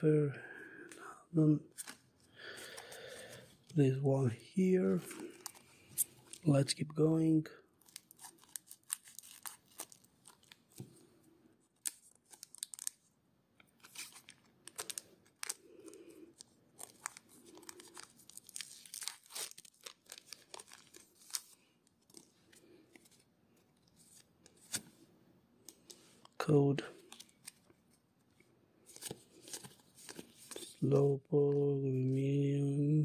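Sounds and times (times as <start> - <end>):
foil wrapper crinkling: 7.8 - 10.7, 11.8 - 13.0, 13.8 - 22.2.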